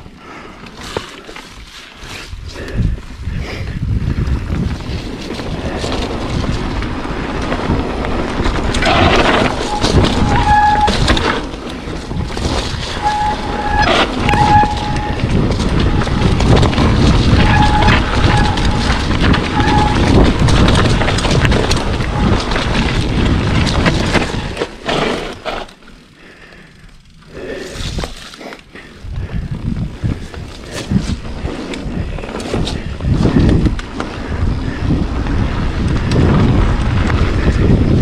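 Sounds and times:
bike tyres rumbling over rough trail: 0.0s - 38.0s
wind on microphone: 2.1s - 24.7s, 28.8s - 38.0s
disc brakes squealing: 8.8s - 20.9s, 21.7s - 22.6s.

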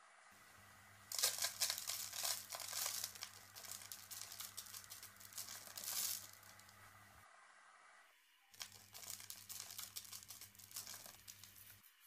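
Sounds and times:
salt crackling into yogurt: 1.1s - 6.8s, 8.6s - 12.0s.

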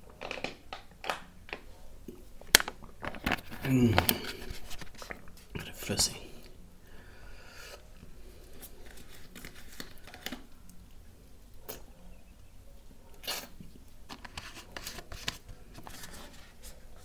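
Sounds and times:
person swallowing: 3.5s - 4.6s
wet mouth clicks: 13.2s - 13.6s.

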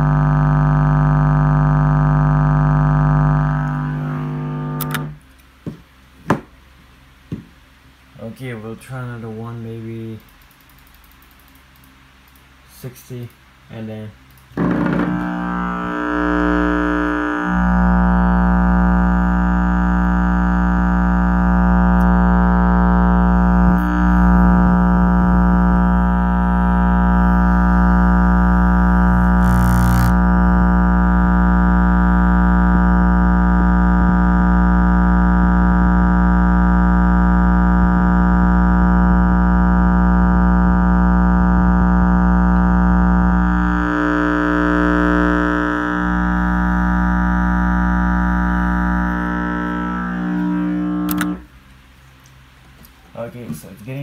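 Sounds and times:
low subwoofer test tone: 0.0s - 5.3s, 14.5s - 51.9s.

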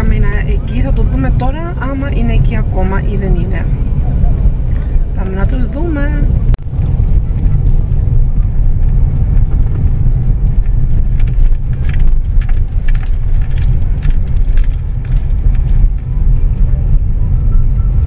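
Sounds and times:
car road and engine rumble: 0.0s - 18.0s
light jingling rattles: 6.8s - 17.6s.

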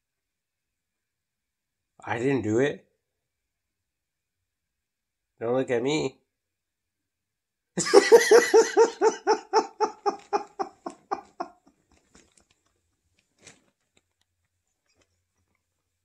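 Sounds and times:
man laughing heartily: 7.8s - 11.6s.

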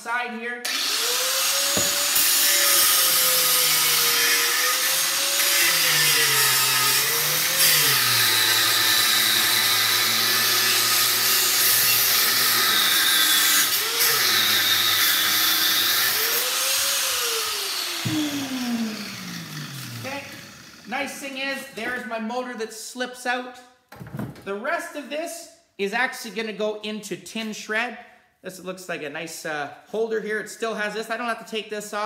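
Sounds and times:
angle grinder grinding metal: 0.6s - 21.3s.

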